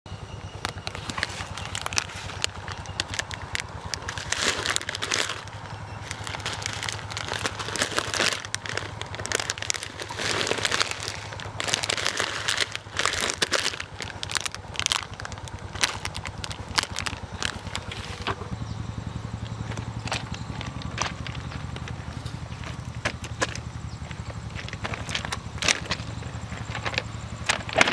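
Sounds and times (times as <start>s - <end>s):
steady low hum: 0.1s - 27.9s
irregular clicks: 0.6s - 18.5s
plastic snack packet crinkling: 0.6s - 18.6s, 19.6s - 27.9s.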